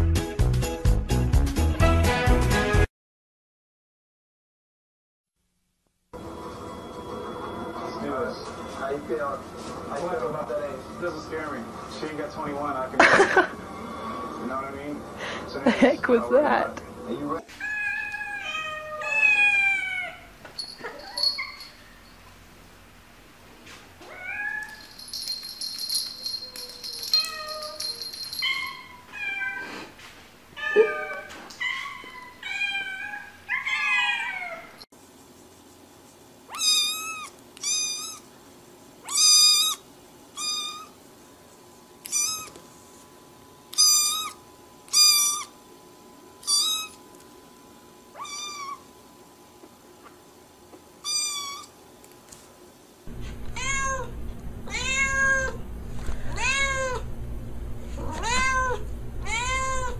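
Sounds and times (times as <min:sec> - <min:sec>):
cats meowing: 0:17.5 - 0:21.6, 0:24.0 - 0:24.9, 0:26.2 - 0:29.7, 0:30.6 - 0:34.8, 0:36.5 - 0:38.3, 0:42.0 - 0:42.6, 0:43.7 - 0:45.5, 0:46.4 - 0:47.0, 0:48.2 - 0:48.9, 0:51.0 - 0:51.7, 0:53.2 - 0:55.6, 0:56.2 - 0:57.1, 0:57.9 - 0:59.9
steady low hum: 0:53.1 - 0:59.9.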